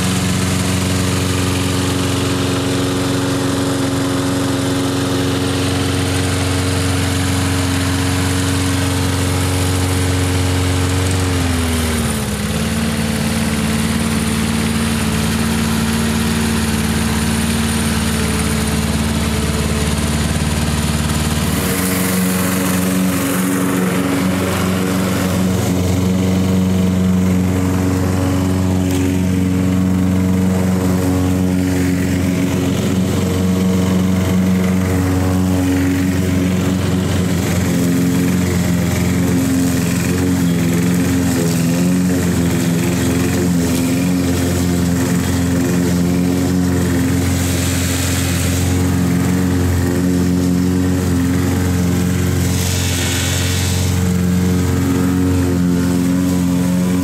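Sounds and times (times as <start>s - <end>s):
lawn mower engine running: 0.0s - 57.0s.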